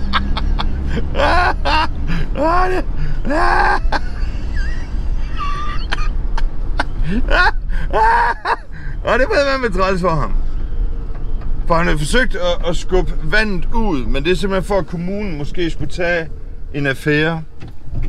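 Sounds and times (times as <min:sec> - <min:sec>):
man laughing hard: 0:00.0 - 0:08.9
minibus driving rumble: 0:00.0 - 0:18.0.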